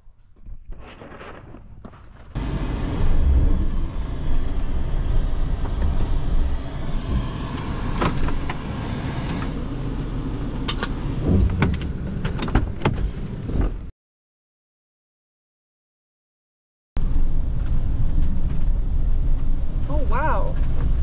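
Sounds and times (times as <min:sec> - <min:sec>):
van engine running: 0:02.4 - 0:13.9.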